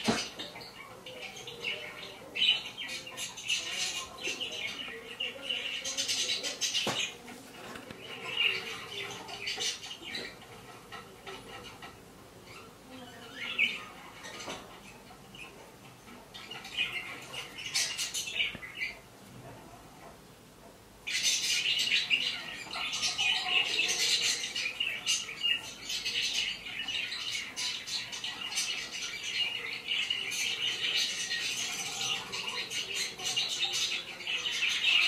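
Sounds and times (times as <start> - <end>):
budgerigars chirping and chattering: 0.0 - 35.0.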